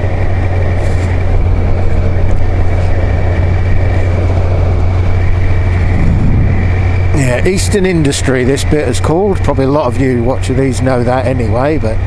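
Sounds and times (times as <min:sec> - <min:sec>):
wind noise on microphone: 0:00.0 - 0:08.0
motorcycle engine cruising: 0:00.0 - 0:11.8.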